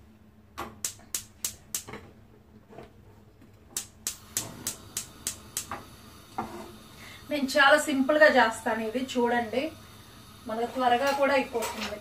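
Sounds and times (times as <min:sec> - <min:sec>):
gas hob igniter clicking: 0:00.6 - 0:02.0, 0:03.7 - 0:08.0, 0:10.5 - 0:12.0.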